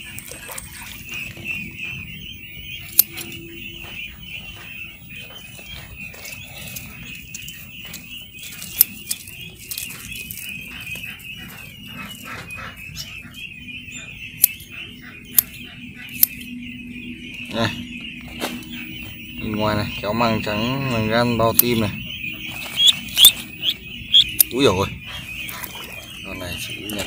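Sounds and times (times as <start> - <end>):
ducklings peeping: 0.0 - 27.0
sharp clicks: 2.8 - 3.5, 7.3 - 10.4, 15.3 - 16.5.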